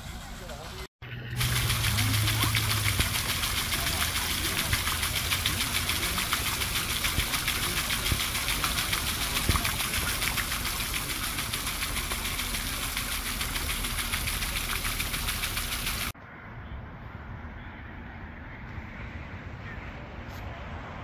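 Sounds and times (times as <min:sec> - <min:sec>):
rush of splashing water: 0:00.0 - 0:16.2.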